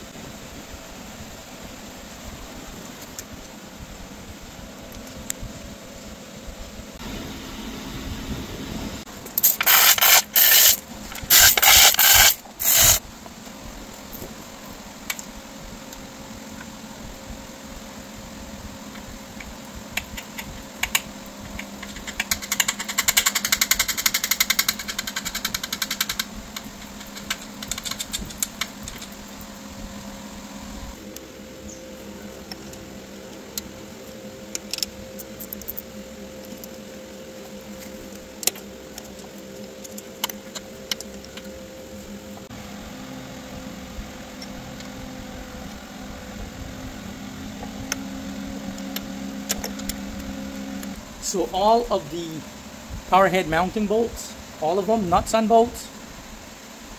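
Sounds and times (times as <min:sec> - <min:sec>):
steady background hum: 0:00.0 - 0:56.9
ratchet wrench clicking: 0:09.4 - 0:13.0, 0:20.0 - 0:29.2.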